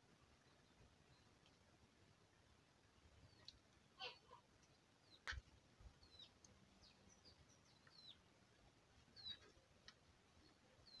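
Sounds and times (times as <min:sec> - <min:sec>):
faint bird chirps: 0:00.3 - 0:01.5, 0:03.1 - 0:08.3, 0:09.1 - 0:09.7, 0:10.3 - 0:11.0.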